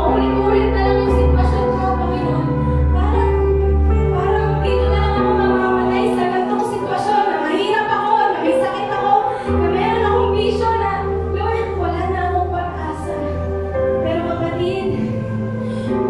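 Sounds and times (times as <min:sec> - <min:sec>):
full bass: 0:00.0 - 0:06.5.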